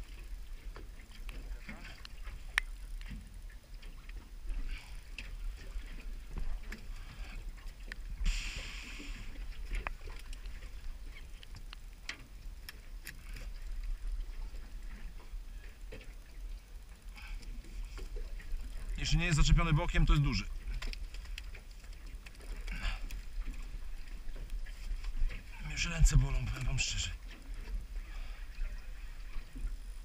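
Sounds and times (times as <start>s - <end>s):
steady low rumble: 0.0s - 30.0s
rush of hiss: 8.2s - 9.3s.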